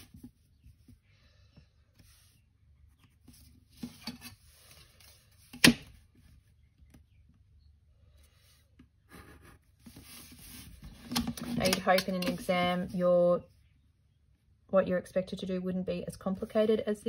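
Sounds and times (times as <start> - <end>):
pencil ruling lines: 8.2 - 10.8.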